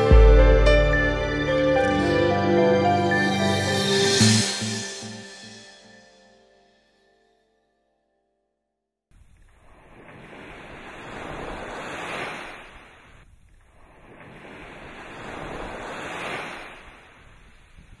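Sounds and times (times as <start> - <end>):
sea waves washing in: 0.0 - 5.6, 9.4 - 18.0.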